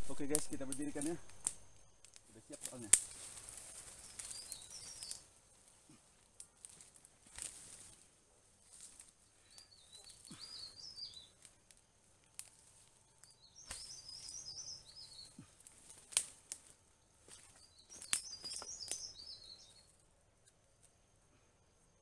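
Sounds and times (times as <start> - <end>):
songbird warbling: 4.0 - 5.3, 13.4 - 15.4, 17.5 - 19.9.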